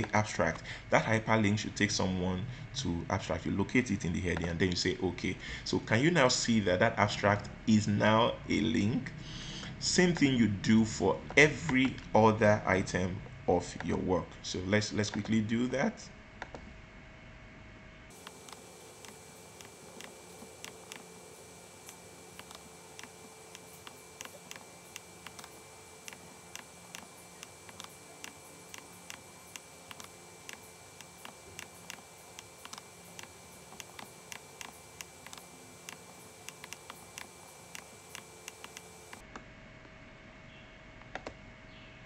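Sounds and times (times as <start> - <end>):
computer mouse clicking: 18.2 - 21.1, 21.8 - 39.2.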